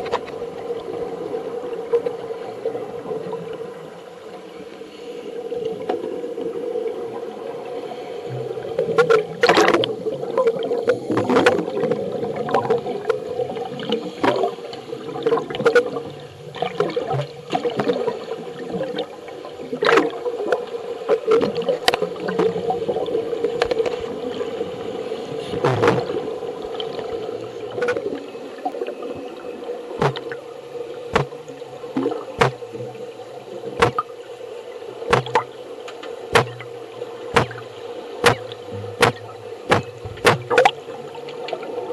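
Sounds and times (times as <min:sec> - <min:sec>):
underwater bubbles gurgling: 0:00.0 - 0:41.9
steady hum: 0:24.9 - 0:41.9.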